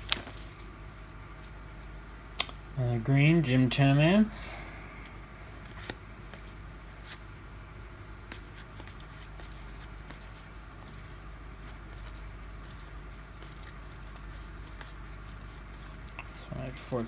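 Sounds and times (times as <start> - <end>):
cards clicking and rustling: 0.0 - 0.7, 5.6 - 7.2, 8.3 - 17.0
low steady hum: 0.0 - 17.0.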